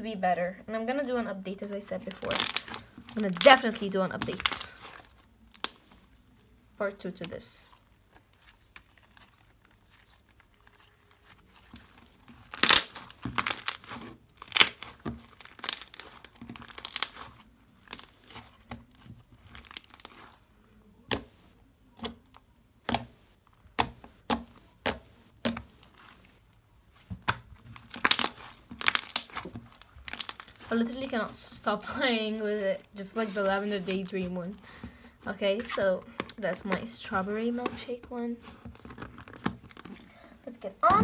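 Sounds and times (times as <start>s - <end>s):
slime crackling and popping: 2.0s - 6.5s, 7.7s - 34.8s.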